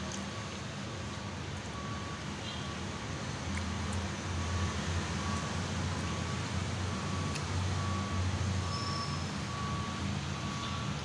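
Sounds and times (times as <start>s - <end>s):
faint short beeps: 7.0s - 10.9s.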